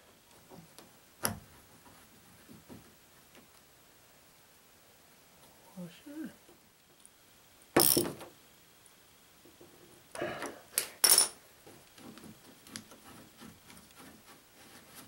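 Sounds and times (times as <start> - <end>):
metal hand tools clinking: 11.0 - 11.4.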